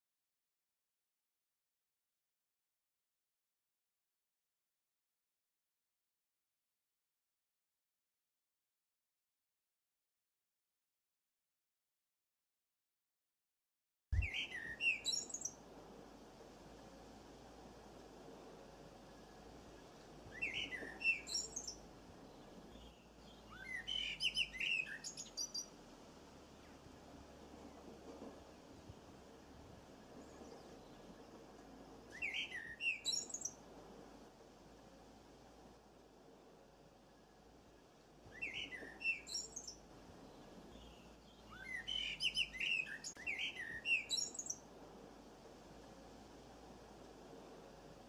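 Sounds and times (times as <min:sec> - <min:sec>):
small songbird chirping: 0:14.2 - 0:15.7, 0:19.0 - 0:25.8, 0:32.1 - 0:33.6, 0:37.1 - 0:44.7.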